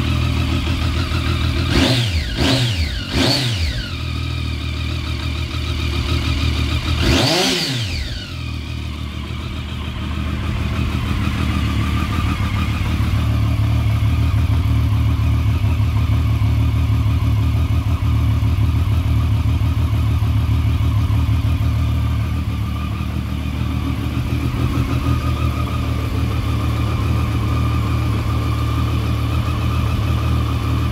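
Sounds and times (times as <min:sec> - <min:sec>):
motorcycle engine idling: 0:00.0 - 0:30.9.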